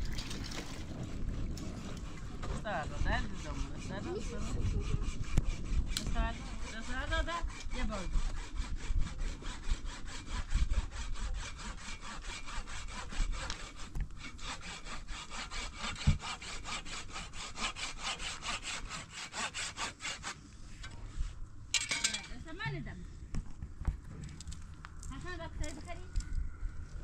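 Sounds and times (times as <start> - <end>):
hand saw cutting wood: 0.9 - 21.0.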